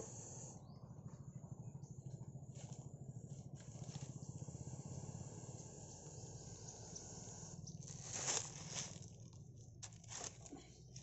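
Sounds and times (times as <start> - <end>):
faint low hum: 0.0 - 11.0
dry leaves rustling and crunching: 7.7 - 11.0.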